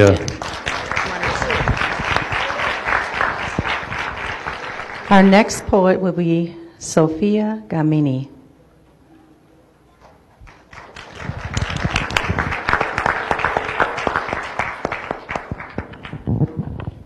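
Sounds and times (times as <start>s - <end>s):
audience applauding: 0.0s - 5.7s, 10.4s - 16.8s.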